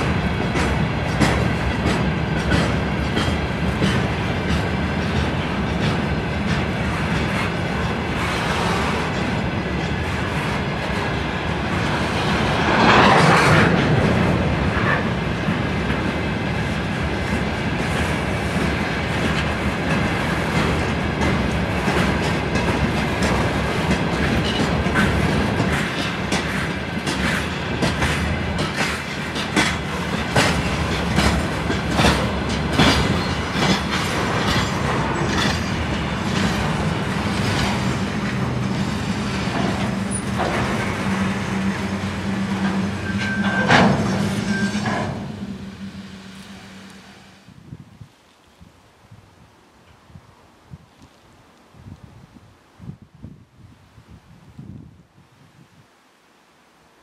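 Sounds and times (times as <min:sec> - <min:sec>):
train wheels clattering over joints: 0:00.0 - 0:46.8
low rumble of train: 0:00.0 - 0:57.0
high wheel squeal: 0:39.9 - 0:47.4.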